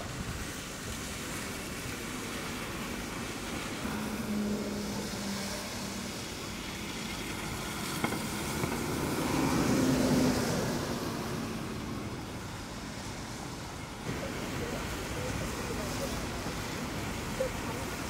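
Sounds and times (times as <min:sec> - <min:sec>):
low engine hum: 0:00.0 - 0:18.0
vehicles passing on wet road: 0:00.0 - 0:18.0.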